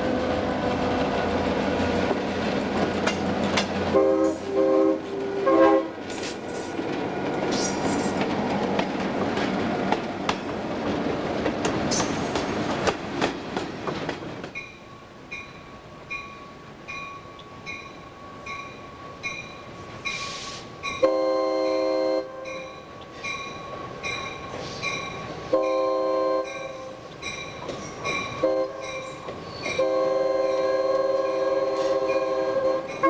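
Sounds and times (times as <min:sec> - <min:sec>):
locomotive air horn blasts: 0:03.9 - 0:06.0, 0:21.0 - 0:22.5, 0:25.5 - 0:26.9, 0:28.4 - 0:28.8, 0:29.8 - 0:33.0
crossing bell dinging: 0:14.6 - 0:33.0.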